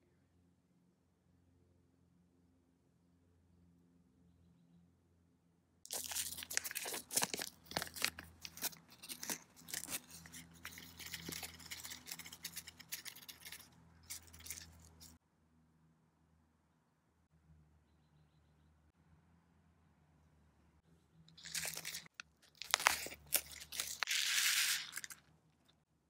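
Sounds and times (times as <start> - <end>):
paper packet crinkling and tearing: 5.9 - 15.2, 21.4 - 25.2.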